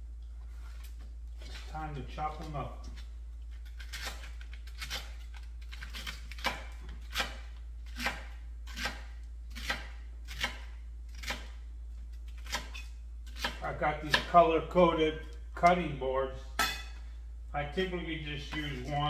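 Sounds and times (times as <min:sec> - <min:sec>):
steady low hum: 0:00.0 - 0:19.0
knife chopping on plastic board: 0:12.4 - 0:14.4.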